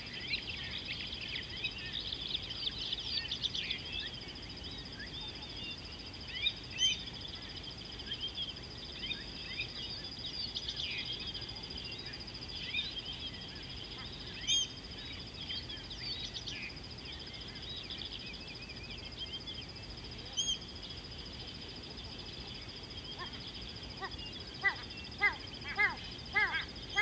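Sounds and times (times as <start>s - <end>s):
high-pitched insect drone: 0.0s - 27.0s
small birds chirping: 0.0s - 27.0s
loud short bird calls: 23.0s - 27.0s.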